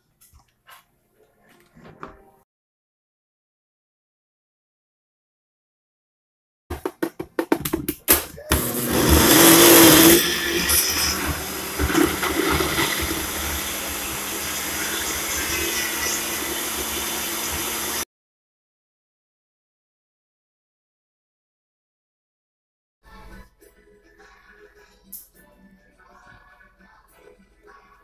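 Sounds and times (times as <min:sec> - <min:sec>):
blender blending: 0:08.5 - 0:18.1.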